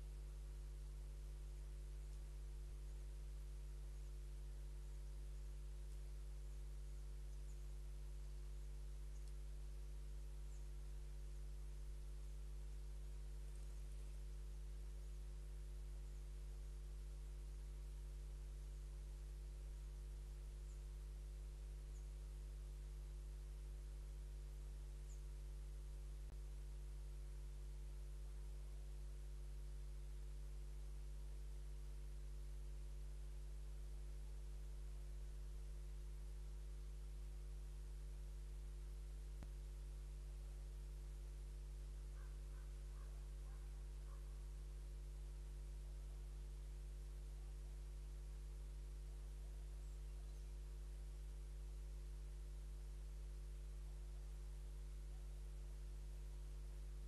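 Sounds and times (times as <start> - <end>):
low electrical hum with hiss: 0.0 - 57.0
faint click: 2.0 - 2.3, 9.2 - 9.5
click: 9.2 - 9.4.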